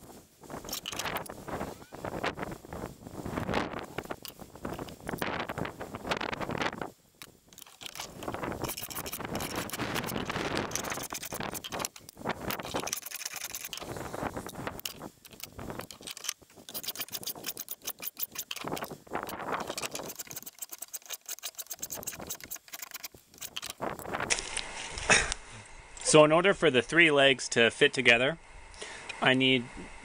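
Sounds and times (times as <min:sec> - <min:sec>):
spokeshave scraping wood: 0:03.2 - 0:06.9, 0:07.5 - 0:25.1.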